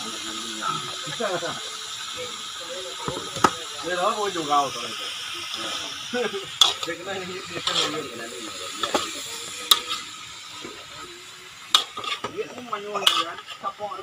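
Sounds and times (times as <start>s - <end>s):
light sizzle: 0.0s - 14.0s
metal spatula scraping a wok: 6.5s - 10.6s, 11.6s - 13.8s.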